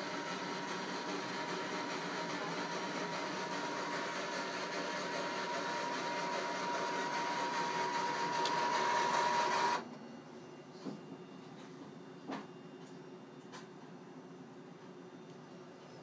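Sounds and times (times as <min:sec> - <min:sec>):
coin hopper motor whirring: 0:00.0 - 0:09.8.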